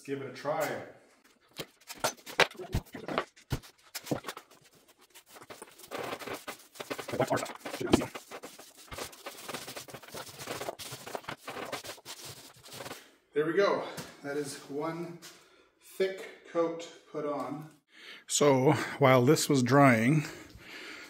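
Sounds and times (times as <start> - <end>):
paint roller spreading sealant: 3.9 - 13.0.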